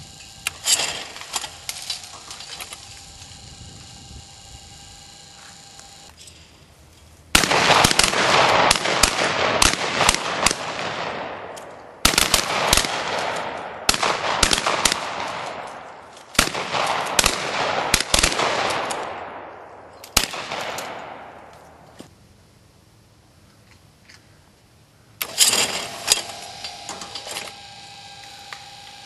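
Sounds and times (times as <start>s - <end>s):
rolling echo of gunshots: 7.3s - 21.5s
shotgun volleys: 7.4s - 15.7s.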